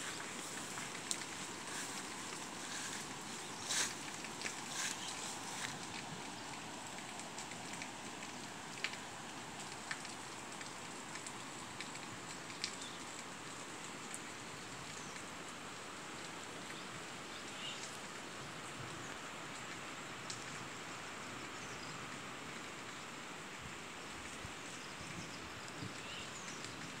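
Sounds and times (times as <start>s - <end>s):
rainwater runoff rushing: 0.0s - 17.1s.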